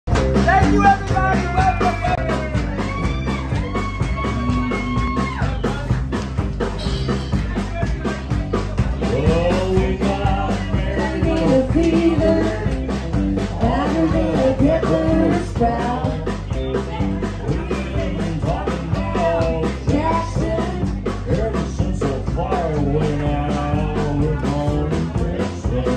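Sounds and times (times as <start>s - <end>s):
live band playing: 0.1s - 25.9s
person singing: 8.1s - 25.9s.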